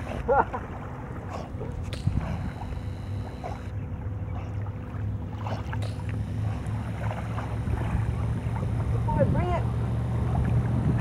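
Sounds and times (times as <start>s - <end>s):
wind buffeting microphone: 0.0s - 4.1s, 6.9s - 11.0s.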